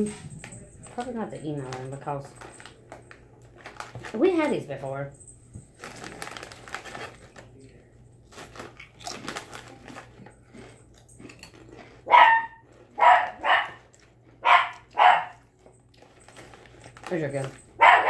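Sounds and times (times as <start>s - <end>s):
chewing potato chips: 0.0s - 4.6s, 5.7s - 17.9s
dog barking: 12.1s - 15.4s, 17.8s - 18.0s.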